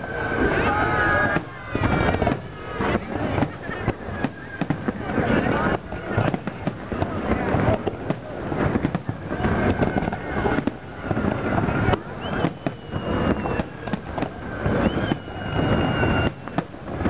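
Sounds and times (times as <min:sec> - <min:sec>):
fireworks bursting: 0:00.0 - 0:17.0
high rising whistle: 0:12.1 - 0:14.0, 0:14.6 - 0:16.5.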